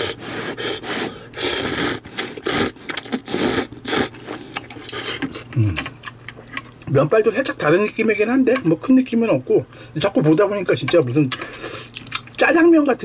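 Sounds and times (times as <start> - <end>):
person slurping noodles: 0.0 - 5.9.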